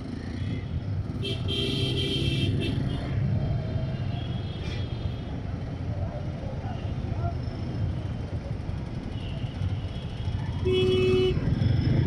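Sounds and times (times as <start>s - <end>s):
vehicle horn: 10.6s - 11.4s.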